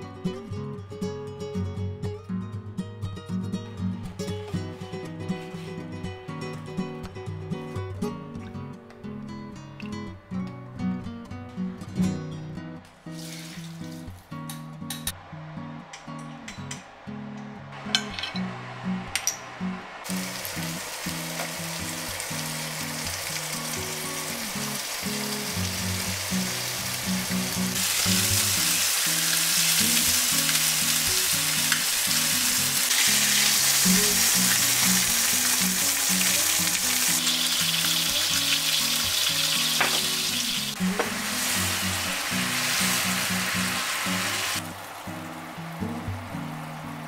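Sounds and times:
chicken sizzling in hot oil: 13.1s - 14.2s, 20.0s - 46.7s
soft background music: 15.8s - 47.0s.

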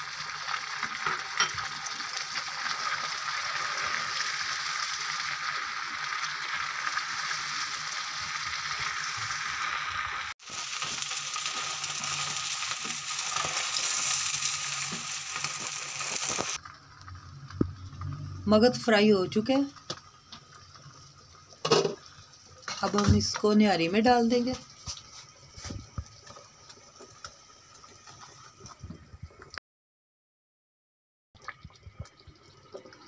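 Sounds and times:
meat sizzling in a frying pan: 0.0s - 16.6s.

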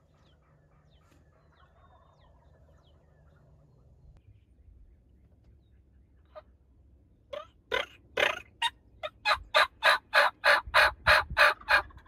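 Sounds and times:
distant turkey gobbling: 0.0s - 4.0s, 7.2s - 12.0s
low wind rumble: 10.3s - 12.0s.

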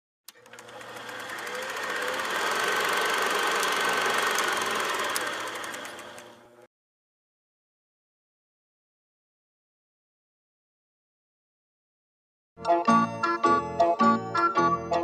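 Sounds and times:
film projector clattering: 0.3s - 6.6s.

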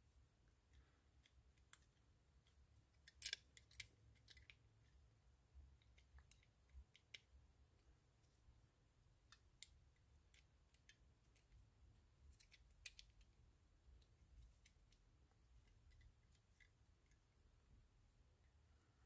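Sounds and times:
small metal parts clicking: 0.7s - 4.6s, 12.3s - 13.3s.

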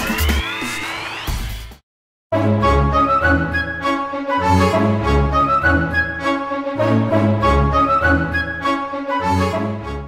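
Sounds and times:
instrumental background music: 2.3s - 10.0s.

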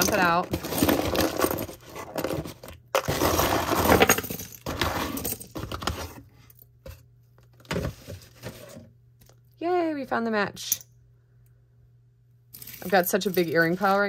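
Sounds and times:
jewelry clattering and clinking: 0.0s - 6.6s, 12.5s - 14.0s.

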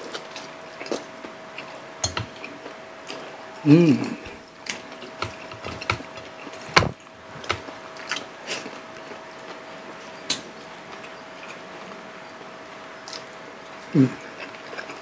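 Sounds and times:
faint steady hum: 0.0s - 15.0s
fingers on plates: 1.6s - 3.2s, 4.3s - 8.7s.

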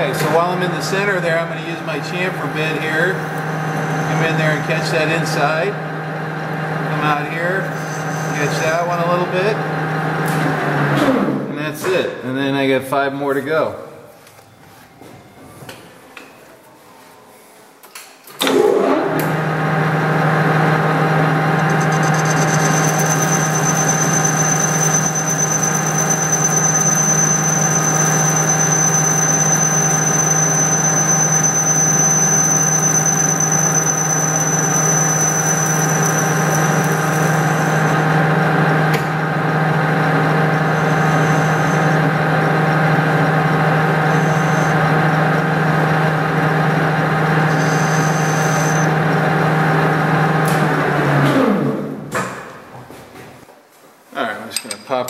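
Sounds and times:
metal lathe running: 0.0s - 10.7s, 19.9s - 50.3s
high-pitched cutting squeal: 1.9s - 5.2s, 7.0s - 9.3s, 21.4s - 38.3s, 40.0s - 45.3s, 46.5s - 49.0s.

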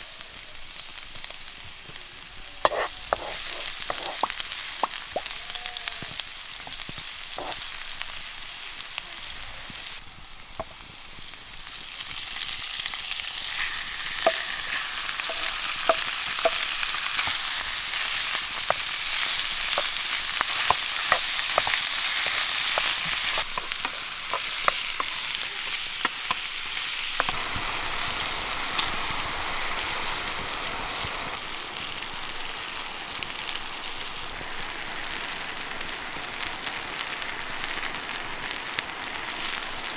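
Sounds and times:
food sizzling in frying pan: 0.0s - 39.9s.

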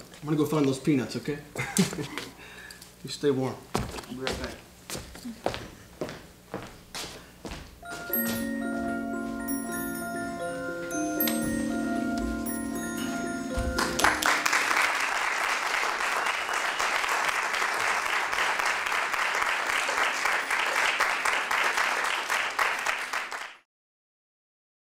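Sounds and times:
sustained music notes: 7.8s - 15.1s
audience applause: 13.6s - 23.6s.

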